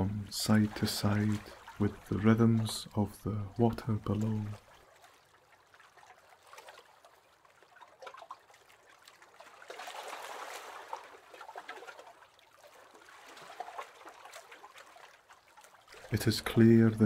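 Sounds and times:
waves lapping against boat hull: 0.0 - 17.0.

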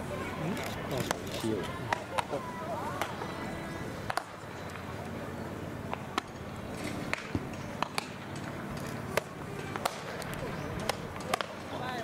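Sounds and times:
faint voices: 0.0 - 12.0
baseballs smacking into gloves: 4.0 - 4.4, 7.1 - 11.7.

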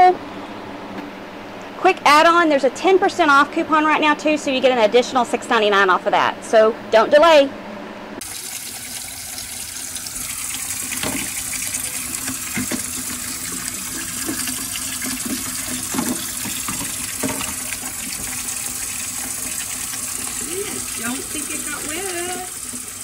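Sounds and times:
tap water splashing on plastic case: 14.2 - 18.4.

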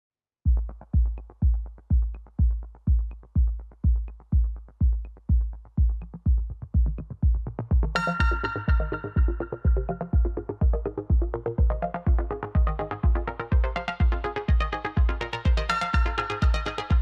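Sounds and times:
kick drum: 0.4 - 17.0
fast ticking hi-hats: 0.5 - 17.0
bright synth line: 8.0 - 10.1.

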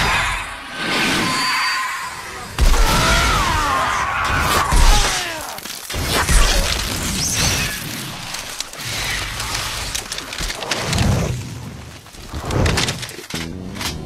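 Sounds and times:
falling sweeping tones: 0.0 - 2.6
rumble: 6.1 - 14.0.

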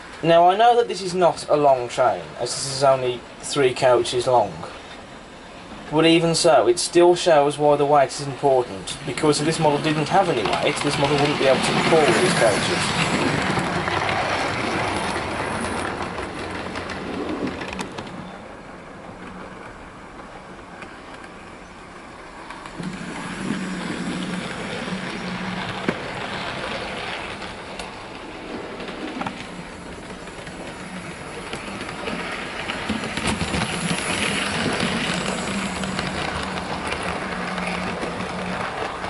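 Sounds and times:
rattling wheels: 7.7 - 18.4, 22.3 - 39.0
clicks over track: 8.9 - 18.2.

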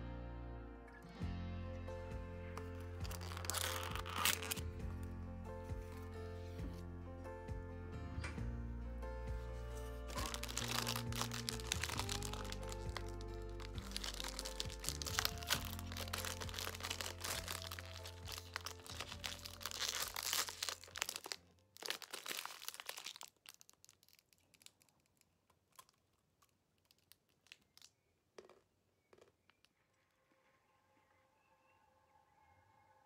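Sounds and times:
background music with bass: 0.0 - 20.6
snack wrapper crinkling: 2.6 - 4.7, 10.1 - 29.8.

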